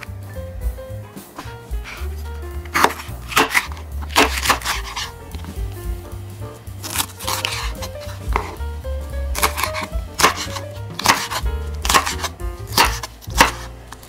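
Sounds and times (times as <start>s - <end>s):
knife chopping on wooden board: 2.7s - 5.1s, 6.8s - 8.6s, 9.4s - 13.7s.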